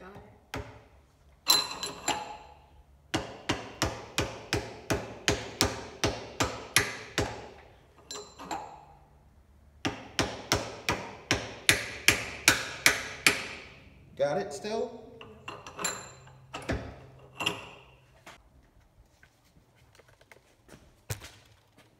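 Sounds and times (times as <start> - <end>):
hammer striking metal spindle: 9.9 - 13.8.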